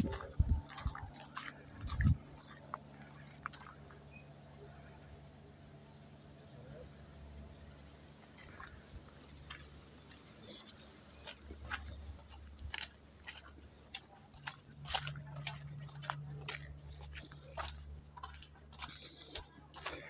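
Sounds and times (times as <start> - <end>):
footsteps crunching on gravel: 0.0 - 4.0, 8.4 - 20.0
low steady rumble: 0.0 - 20.0.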